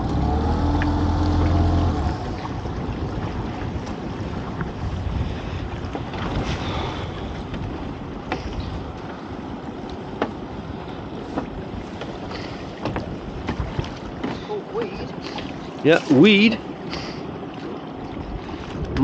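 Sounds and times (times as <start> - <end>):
sea wash: 0.0 - 19.0
wind buffeting microphone: 0.0 - 19.0.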